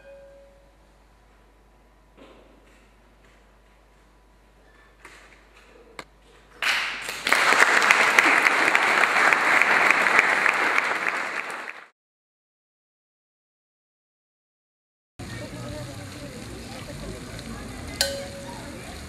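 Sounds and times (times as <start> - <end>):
audience applauding: 6.6 - 11.9.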